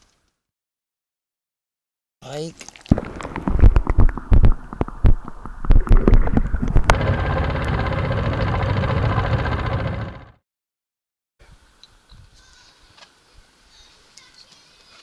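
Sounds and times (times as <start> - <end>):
underwater thumps and knocks: 2.9 - 7.0
outboard motor running: 6.9 - 10.4.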